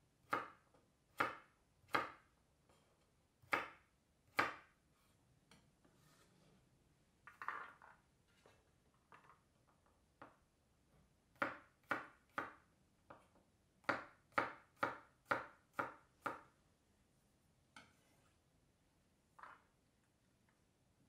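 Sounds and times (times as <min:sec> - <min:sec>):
knife chopping on wooden board: 0:01.2 - 0:02.2, 0:03.4 - 0:04.7, 0:13.8 - 0:16.5.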